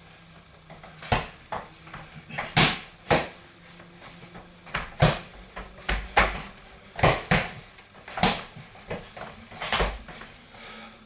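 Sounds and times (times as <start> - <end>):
boxing gloves smacking punch mitts: 0.7 - 10.3.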